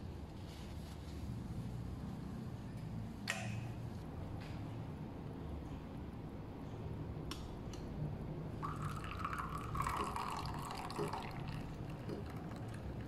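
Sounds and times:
milk pouring into a cup: 8.6s - 13.0s.

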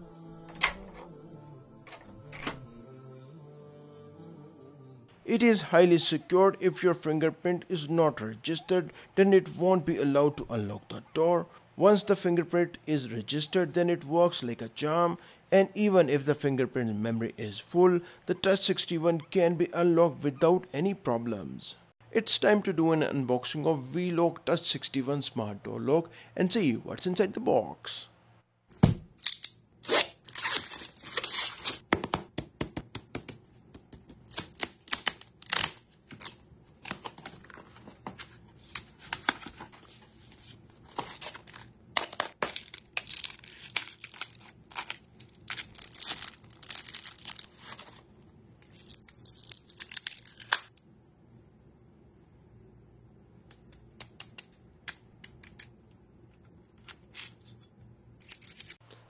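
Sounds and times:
small metal parts clicking: 42.5s - 47.4s, 58.2s - 58.8s.

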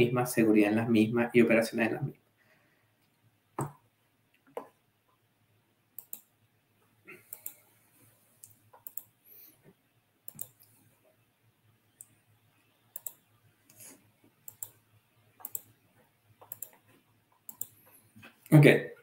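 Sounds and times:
keyboard and mouse clicks: 3.6s - 3.8s, 6.0s - 6.3s, 7.3s - 7.6s, 8.4s - 9.2s, 10.3s - 10.8s, 12.9s - 13.9s, 14.5s - 14.8s, 15.4s - 18.4s.

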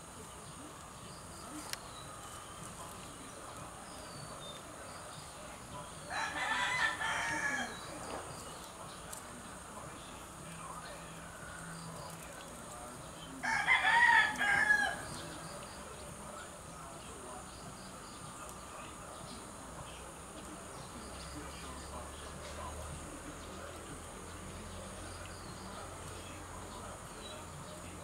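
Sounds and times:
rooster crowing: 6.1s - 7.9s, 13.4s - 15.2s.

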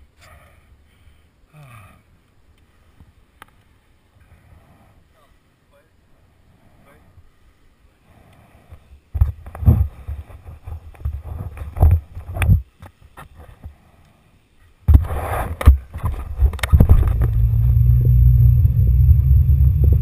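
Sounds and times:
wind rumble on microphone: 9.2s - 12.7s, 14.9s - 20.0s
camera rustling and knocking: 9.2s - 13.7s, 14.9s - 17.4s
steady low rumble: 14.9s - 20.0s.

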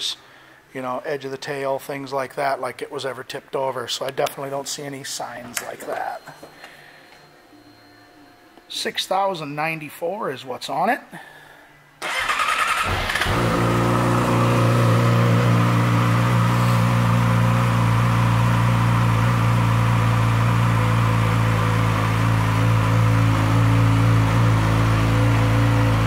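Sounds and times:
electric starter cranking: 12.0s - 14.7s
motorcycle engine idling: 12.1s - 26.0s.

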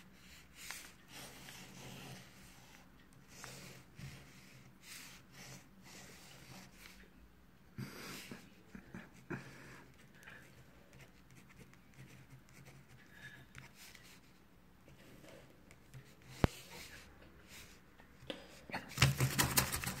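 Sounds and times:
pen scratching on paper: 0.0s - 7.0s, 9.9s - 14.4s
paper rustling: 18.8s - 20.0s.

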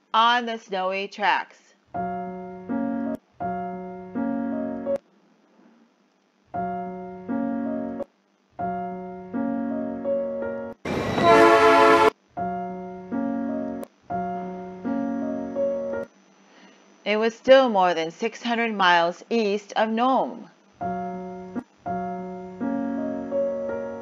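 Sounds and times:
electric piano chords: 2.0s - 5.0s, 6.5s - 16.1s, 20.8s - 24.0s
train whistle blast: 10.9s - 12.2s.

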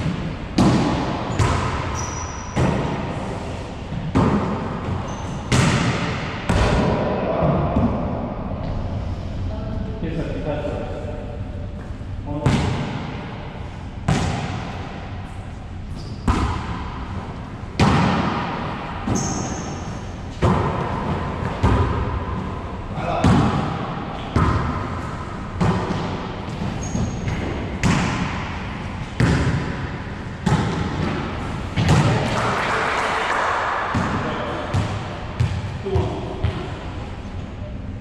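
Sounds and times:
ball slapping and echoing: 0.0s - 8.9s, 11.8s - 37.2s.

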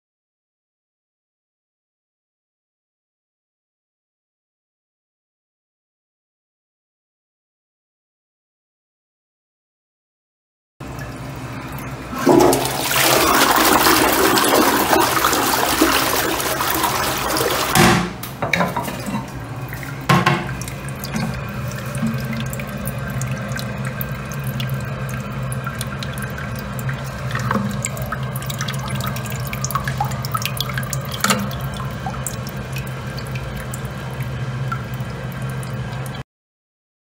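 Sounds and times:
toilet flushing: 10.8s - 36.2s
water running into cistern: 10.8s - 36.2s
knocks: 20.1s - 20.6s.

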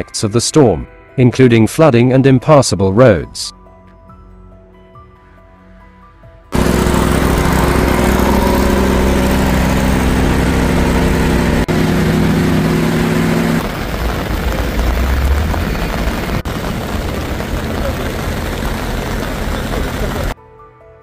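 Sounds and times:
low rumble: 6.6s - 20.4s
motor engine running: 6.6s - 20.4s
loud dense hiss: 12.6s - 20.4s.

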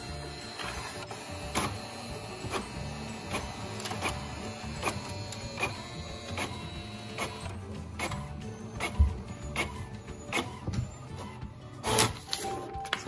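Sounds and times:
printer mechanism running: 0.0s - 12.9s
sharp printer clicks: 0.4s - 8.2s.

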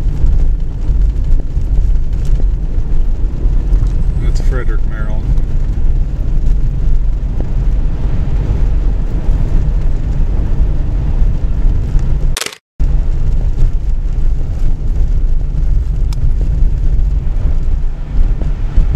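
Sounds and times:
car driving on snowy road: 0.0s - 18.9s
short crackle: 12.3s - 12.6s.

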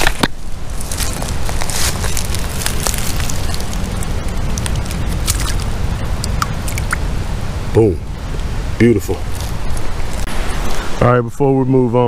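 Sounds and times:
twigs and leaves crackling: 0.0s - 7.1s, 9.1s - 10.3s
steady low rumble: 0.0s - 11.9s.

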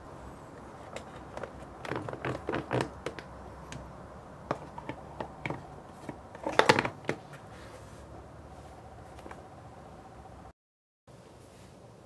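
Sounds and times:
plastic clattering: 0.7s - 3.8s, 4.4s - 7.4s
plastic containers clicking: 0.8s - 7.3s.

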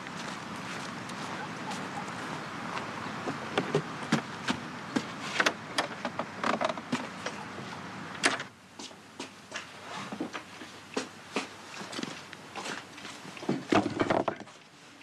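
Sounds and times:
soft indoor footsteps: 0.0s - 5.4s, 8.7s - 13.6s
footsteps on wooden porch: 0.0s - 7.4s, 8.7s - 14.6s.

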